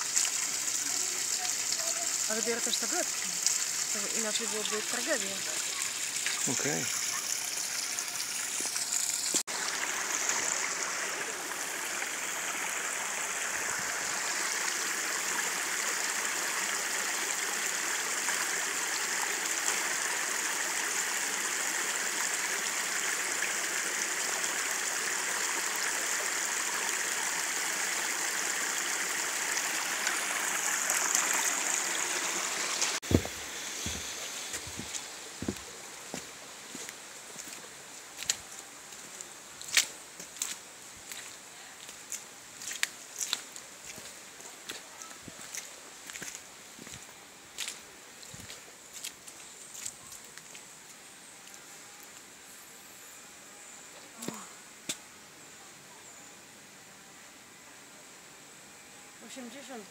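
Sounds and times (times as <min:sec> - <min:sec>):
water pouring onto stones: 0:00.0 - 0:33.2
low thumps: 0:33.0 - 0:34.0.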